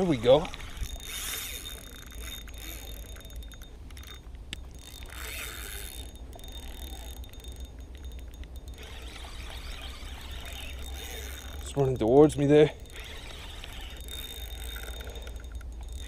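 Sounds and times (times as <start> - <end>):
fishing reel ticking: 0.0 - 16.0.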